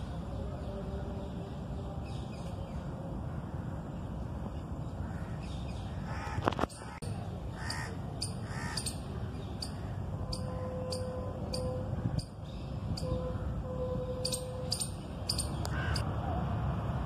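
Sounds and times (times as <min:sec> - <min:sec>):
low background noise: 0:00.0 - 0:17.0
crows cawing: 0:06.1 - 0:07.0, 0:07.6 - 0:09.0, 0:15.7 - 0:16.0.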